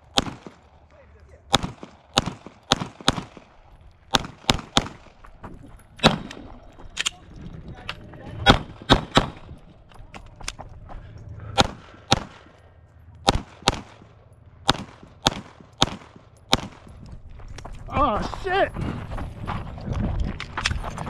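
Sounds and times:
pistol shots with echo: 0:00.1 - 0:00.8, 0:01.5 - 0:05.2, 0:06.0 - 0:06.5, 0:08.4 - 0:09.6, 0:11.6 - 0:12.6, 0:13.2 - 0:17.0.

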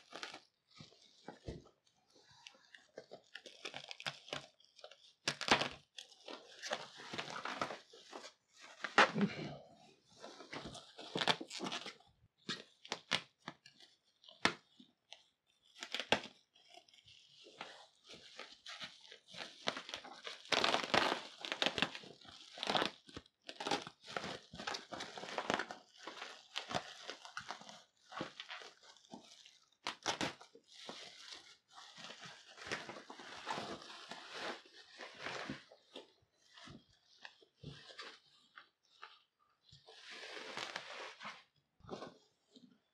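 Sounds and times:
bubble wrap crinkling: 0:00.0 - 0:42.6.

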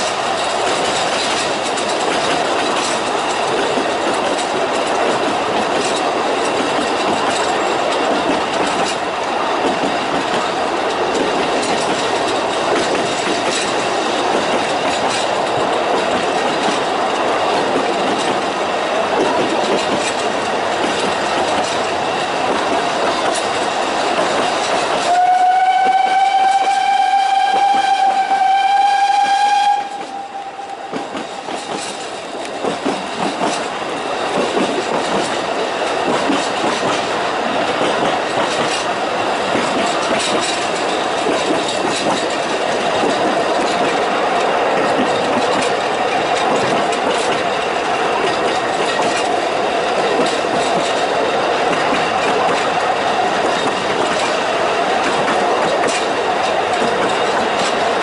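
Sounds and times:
train wheels rattling on rails: 0:00.0 - 0:58.0
steam whistle blast: 0:25.1 - 0:31.0.

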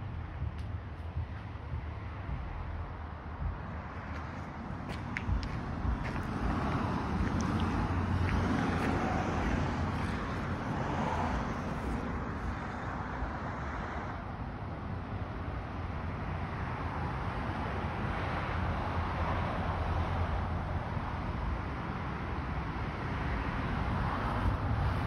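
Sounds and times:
low rumble: 0:00.0 - 0:12.8.

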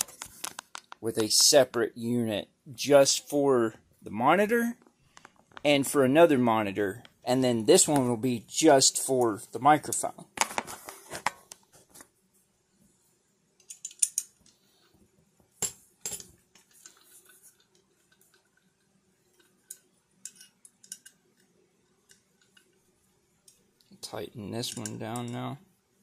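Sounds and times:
metal bolts clinking: 0:13.6 - 0:14.4.

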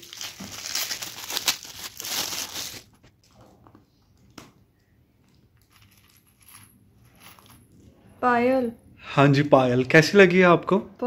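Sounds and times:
foil gift wrap crinkling and tearing: 0:00.0 - 0:03.0.

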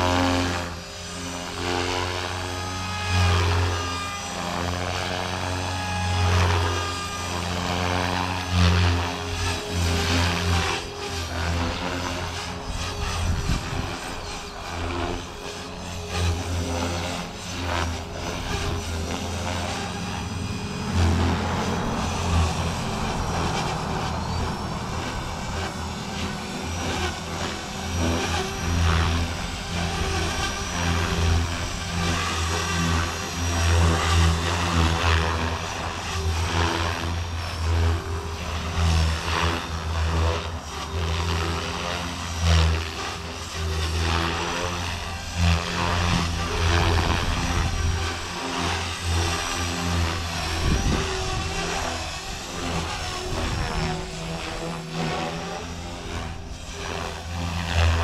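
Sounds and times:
electric motor whine: 0:00.0 - 0:58.0
helicopter rotor buzz: 0:00.0 - 0:58.0.

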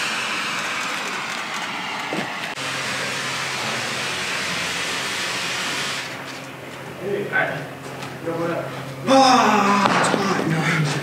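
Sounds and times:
smoke grenade hissing: 0:00.0 - 0:06.2.

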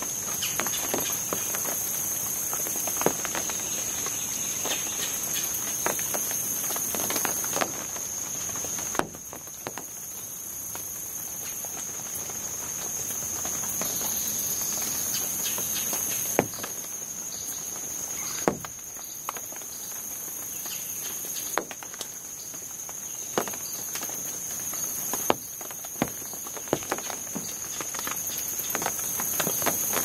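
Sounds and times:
water drops pattering on leaves: 0:00.0 - 0:30.0
high-pitched insect drone: 0:12.6 - 0:21.6.

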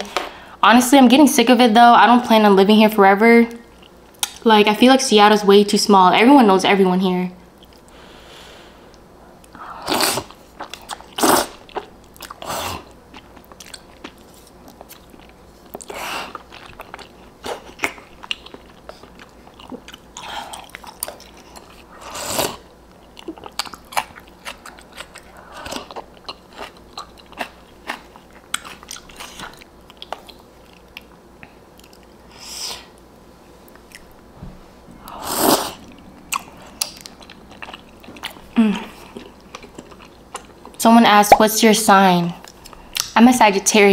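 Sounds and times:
wet chewing with mouth clicks: 0:07.6 - 0:08.0, 0:08.9 - 0:33.0, 0:33.6 - 0:34.2, 0:35.1 - 0:40.8, 0:42.4 - 0:43.2
slurping noodles: 0:11.1 - 0:11.6, 0:22.0 - 0:22.6, 0:35.1 - 0:35.9.

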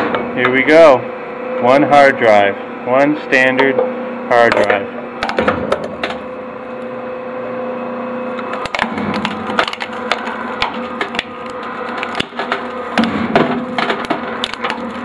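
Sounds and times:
shredder motor humming: 0:04.2 - 0:15.0
hard drive cracking and snapping: 0:05.2 - 0:07.0, 0:08.3 - 0:15.0.

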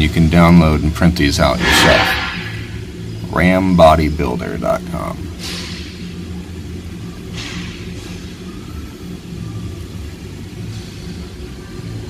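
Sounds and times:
low mechanical hum and rumble: 0:00.0 - 0:12.0
soft swishes: 0:01.6 - 0:02.9.

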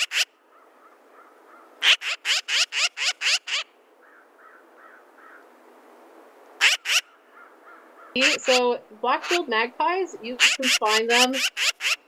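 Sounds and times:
magpie chattering calls: 0:00.0 - 0:00.3, 0:01.8 - 0:03.7, 0:06.6 - 0:07.1, 0:08.1 - 0:09.5, 0:10.3 - 0:12.0.

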